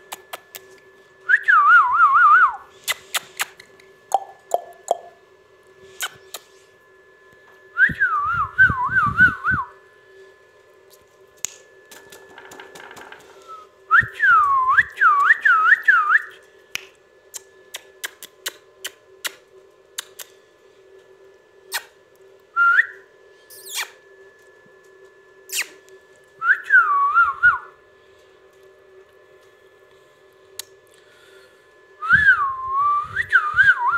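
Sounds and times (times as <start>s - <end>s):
faint steady hum: 0.0s - 33.9s
parakeet whistling: 23.5s - 24.0s.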